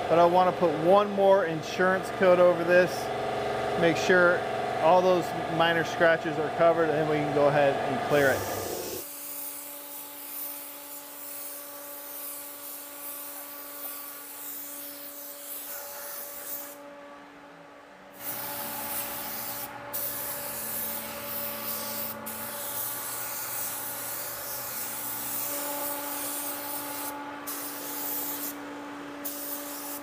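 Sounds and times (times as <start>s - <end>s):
paint spray gun hissing: 8.1s - 16.8s, 18.2s - 28.6s, 29.2s - 30.0s.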